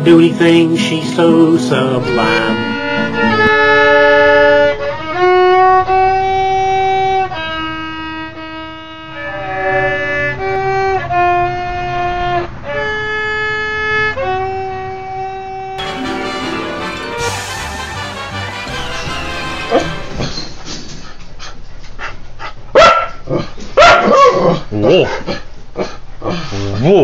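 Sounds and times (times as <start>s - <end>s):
fiddle playing slow melody: 0.0s - 20.5s.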